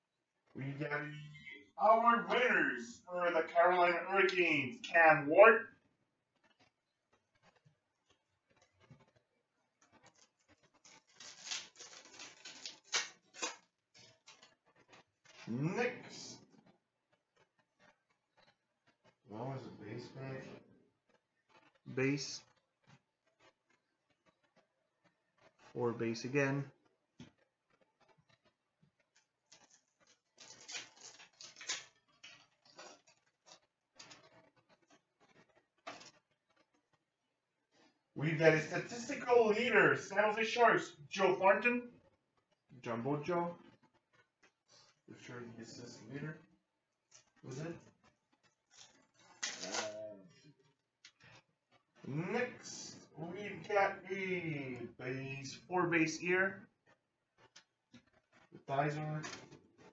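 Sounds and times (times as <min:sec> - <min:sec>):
card packs crinkling: 0:10.0 - 0:14.5, 0:29.2 - 0:34.2, 0:48.6 - 0:50.0.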